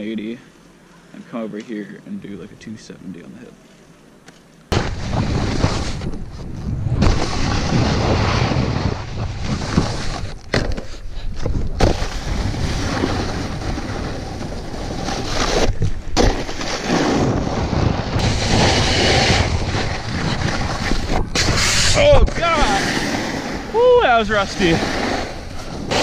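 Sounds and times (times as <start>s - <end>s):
wind rushing over microphone: 4.8s - 10.5s, 11.4s - 26.0s
snowboard scraping over snow: 4.8s - 26.0s.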